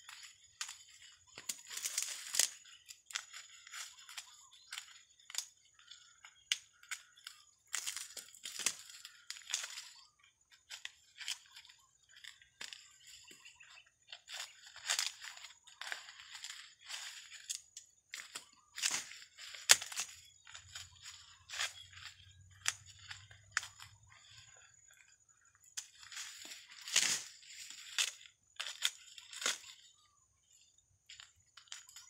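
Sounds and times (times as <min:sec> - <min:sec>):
dry corn stalks rustling: 0:00.0 - 0:32.0
corn ears snapping: 0:00.1 - 0:10.0, 0:14.2 - 0:24.7, 0:25.8 - 0:29.9.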